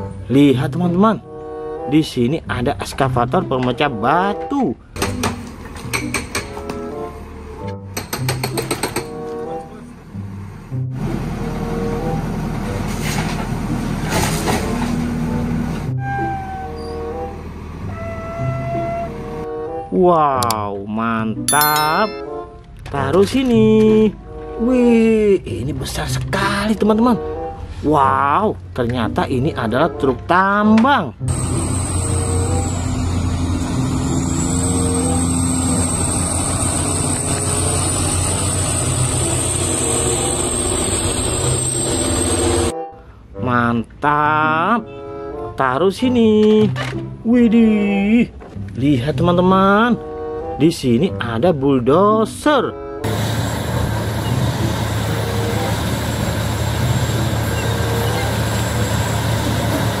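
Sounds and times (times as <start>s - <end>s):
haul truck engine hum and whine: 4.8s - 19.8s, 31.2s - 43.2s, 52.8s - 60.0s.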